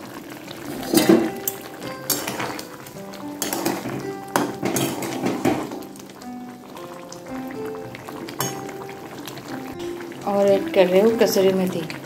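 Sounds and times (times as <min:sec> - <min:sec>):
metal spatula scraping a pan: 0:00.7 - 0:02.7, 0:03.4 - 0:05.7
background music with held notes: 0:00.7 - 0:12.0.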